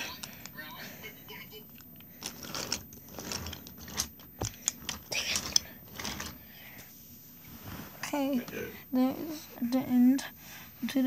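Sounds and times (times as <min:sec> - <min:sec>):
wooden toy train clicking on track: 0:02.2 - 0:06.4.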